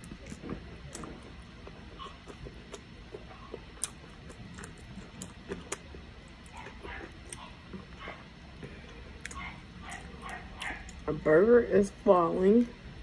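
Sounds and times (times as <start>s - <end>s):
person chewing: 0.0s - 11.1s.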